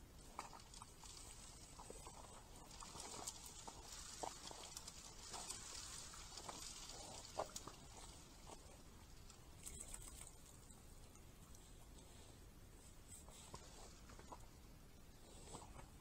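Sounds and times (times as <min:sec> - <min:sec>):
rustling of dry leaves: 0:00.0 - 0:12.3
faint hiss: 0:00.0 - 0:16.0.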